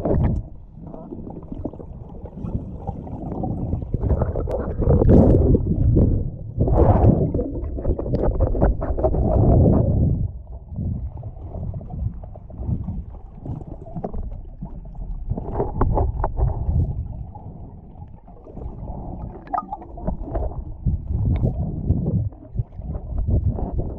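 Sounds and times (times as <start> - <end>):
underwater sea rumble: 0.0 - 23.9
clicks and crackles: 15.0 - 16.9.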